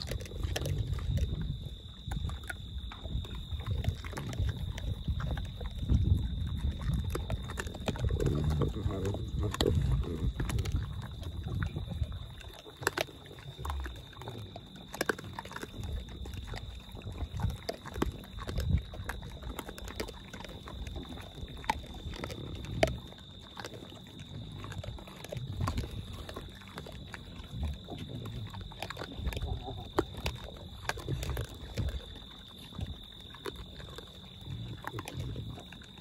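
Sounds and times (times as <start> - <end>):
animals crunching corn: 0.0 - 36.0.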